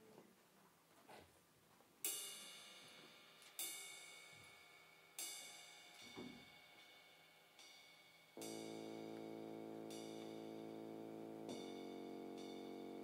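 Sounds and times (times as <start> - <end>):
cymbal strokes ringing: 2.1 - 13.0.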